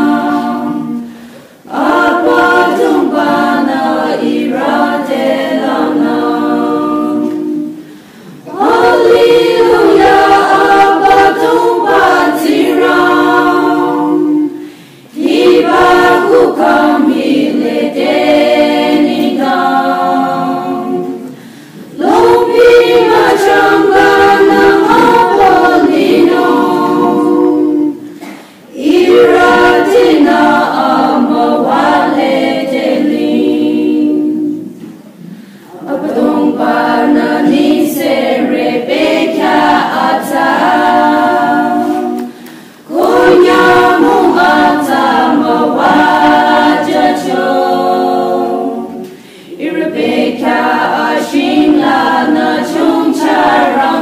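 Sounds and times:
women's choir singing a hymn: 0.0s - 54.0s
singers breathing: 1.1s - 1.7s, 7.8s - 8.5s, 14.6s - 15.1s, 21.3s - 22.0s, 35.2s - 35.8s, 42.3s - 42.9s, 49.1s - 49.6s.

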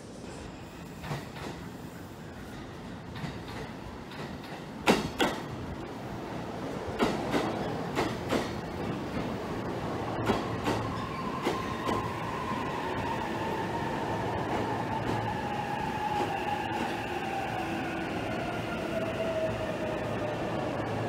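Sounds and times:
rumble of train wheels: 0.0s - 21.0s.

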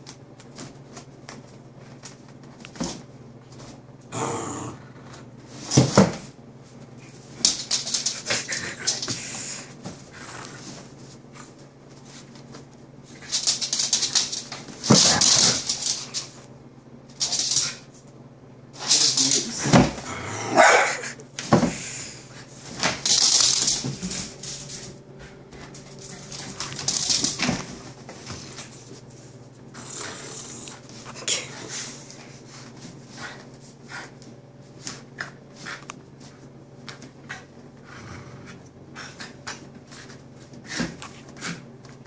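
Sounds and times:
dog barking: 20.5s - 21.2s.

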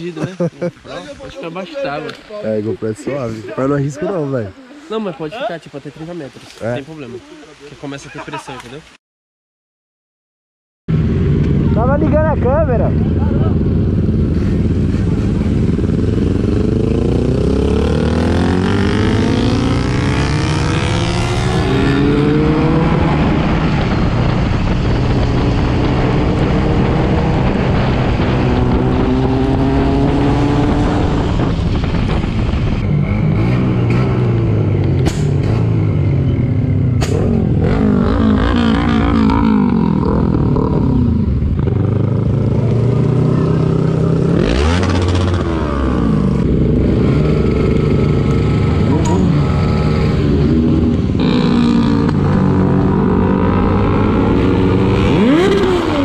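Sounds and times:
wind noise: 10.9s - 56.0s
motorcycle engine shifting gears: 13.6s - 56.0s.

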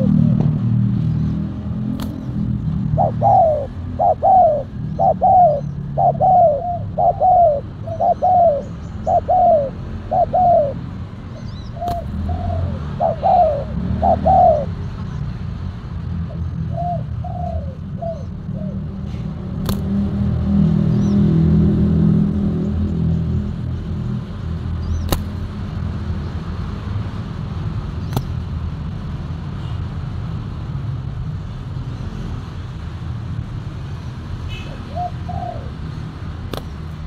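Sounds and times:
doves cooing: 0.0s - 15.0s, 16.2s - 23.6s, 34.5s - 37.0s
wing clap: 19.6s - 19.9s, 36.5s - 36.9s.

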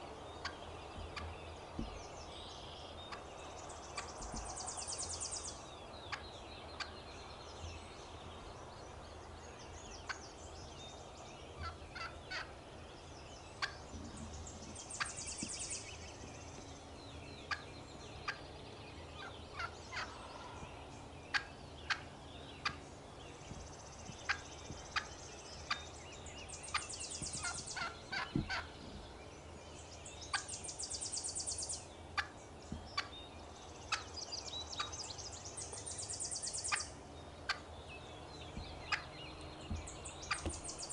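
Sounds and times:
turkey clucking: 11.6s - 12.5s, 13.6s - 13.8s, 19.2s - 20.2s, 21.3s - 22.8s, 24.2s - 25.9s, 26.7s - 28.8s, 32.2s - 32.4s, 38.8s - 39.1s, 39.7s - 40.6s.

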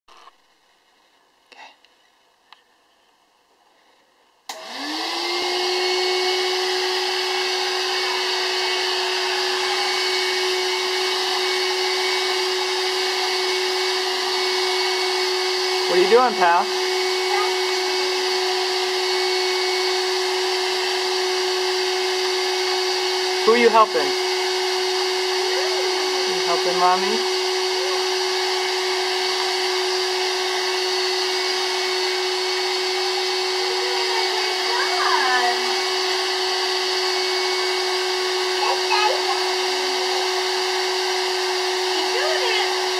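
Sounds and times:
vacuum cleaner motor humming: 4.5s - 42.9s.

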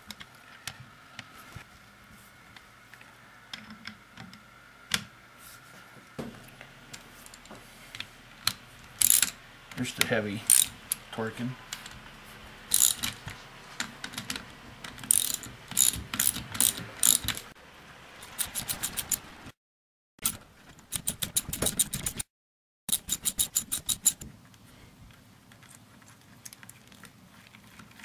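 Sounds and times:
ratchet wrench clicking: 9.0s - 9.4s, 10.5s - 10.8s, 12.7s - 13.2s, 15.0s - 17.4s, 18.2s - 19.2s, 22.9s - 24.2s.

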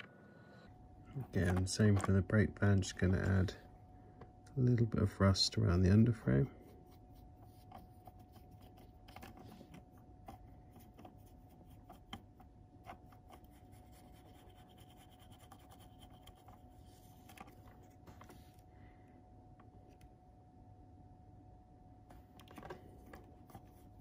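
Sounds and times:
faint steady hum: 0.0s - 24.0s
paintbrush scratching on plastic: 5.7s - 18.6s, 23.1s - 24.0s.

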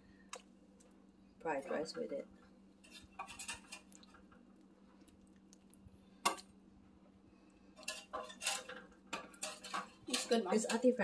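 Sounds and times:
faint steady hum: 0.0s - 11.0s
spatula scraping a skillet: 2.8s - 4.2s, 7.7s - 11.0s.

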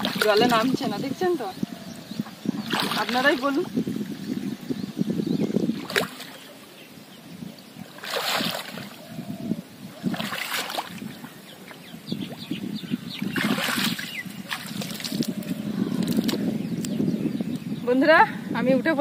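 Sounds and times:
water sloshing from wading: 0.0s - 4.7s, 5.7s - 6.8s, 7.7s - 9.2s, 9.9s - 16.6s
loud water splashes: 2.6s - 3.6s, 5.7s - 6.4s, 7.9s - 9.0s, 10.0s - 11.1s, 13.2s - 15.3s.

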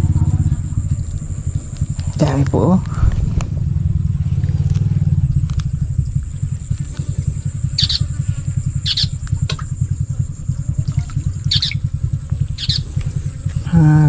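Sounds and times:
low fluttering rumble: 0.0s - 14.0s
high-pitched chirps: 7.7s - 8.2s, 8.8s - 9.2s, 11.5s - 11.8s, 12.6s - 12.9s.

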